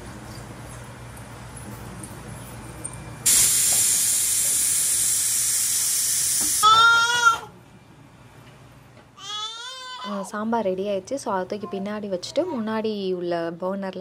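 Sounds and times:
pressure cooker steam hiss: 3.2 - 6.8
pressure cooker whistle: 3.3 - 7.3.

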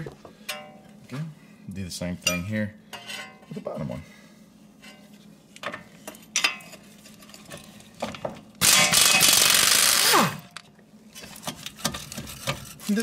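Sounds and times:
impact wrench rattling: 8.6 - 10.4.

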